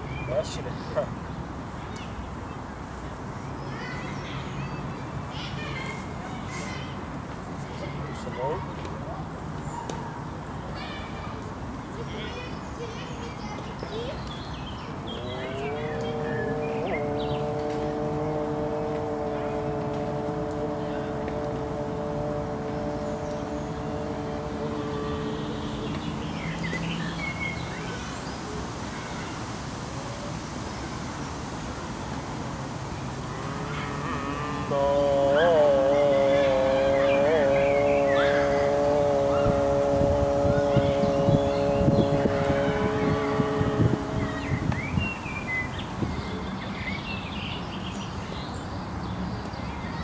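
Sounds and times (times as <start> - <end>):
small birds chirping: 11.8 - 29.2, 32.8 - 50.0.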